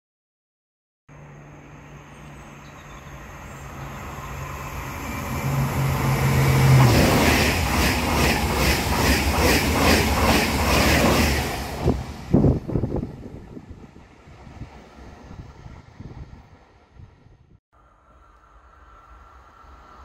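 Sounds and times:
train passing at speed: 1.1s - 20.0s
train wheels clacking over rail joints: 6.8s - 11.6s.

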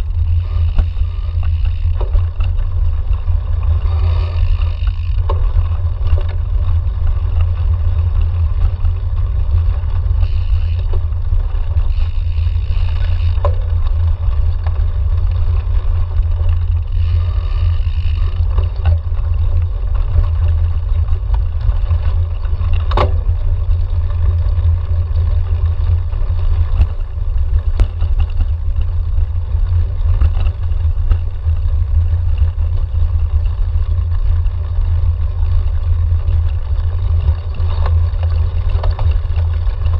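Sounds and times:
bike clicks and knocks: 0.0s - 39.9s
wind and vibration rumble: 0.0s - 39.9s.

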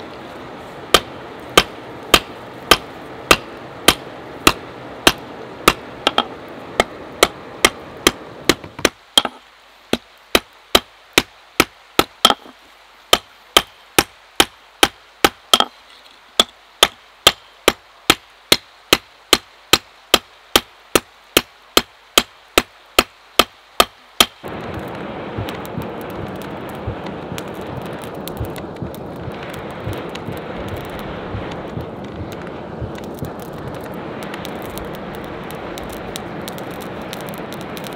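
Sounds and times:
steady rushing noise: 0.0s - 37.9s
hammer striking steel on anvil: 11.6s - 12.5s, 13.1s - 15.7s
faint crackles: 23.7s - 37.9s.

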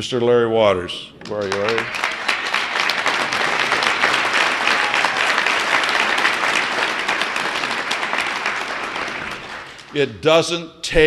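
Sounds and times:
audience applauding: 1.2s - 10.1s.

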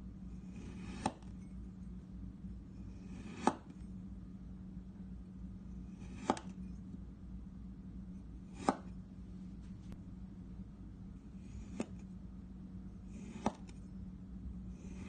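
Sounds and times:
knife cutting kinetic sand: 0.3s - 1.4s, 2.8s - 3.8s, 5.8s - 6.6s, 8.5s - 9.0s, 11.2s - 12.1s, 13.0s - 13.8s, 14.7s - 15.0s.

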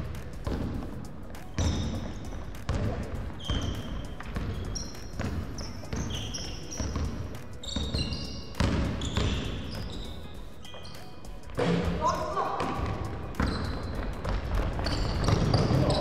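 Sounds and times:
basketball bouncing on wooden floor: 0.4s - 0.9s, 1.6s - 10.0s, 12.6s - 16.0s
sneaker squeaks: 0.4s - 16.0s.

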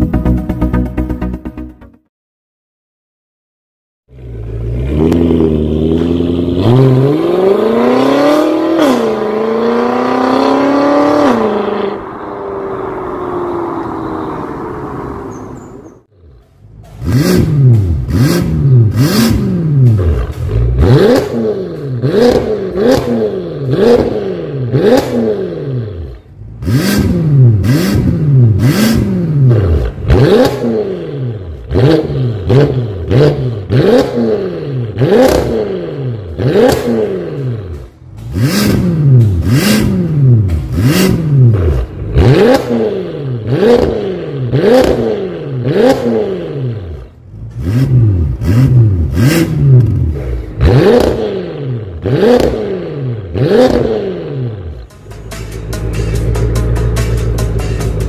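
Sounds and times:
car engine starting and revving: 4.1s - 58.0s.

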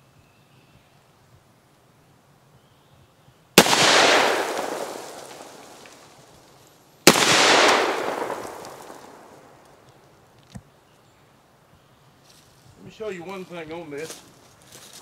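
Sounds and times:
shotgun blasts with echo: 3.6s - 6.3s, 7.0s - 9.6s.

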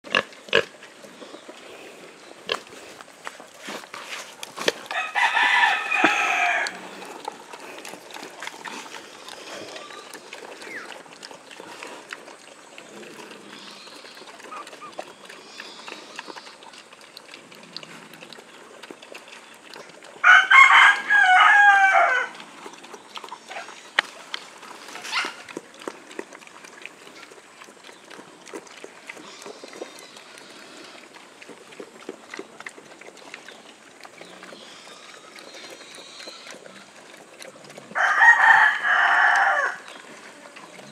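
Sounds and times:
faint ticks and rustles: 0.2s - 20.2s, 22.4s - 38.0s
rooster crowing: 4.9s - 6.8s, 20.2s - 22.4s, 38.0s - 39.8s.

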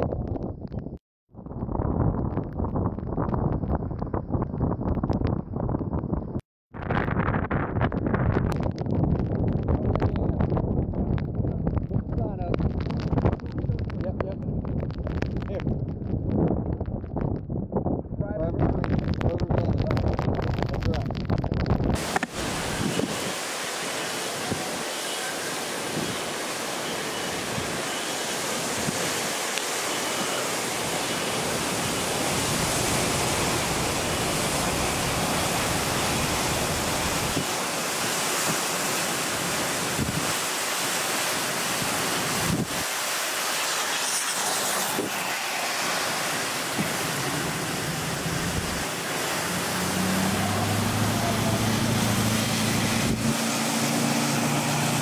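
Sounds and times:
wind buffeting microphone: 0.0s - 23.4s, 39.8s - 40.5s, 41.7s - 42.9s, 46.7s - 55.0s
heavy wind and rain: 0.0s - 55.0s
vehicle engine hum: 46.8s - 55.0s.

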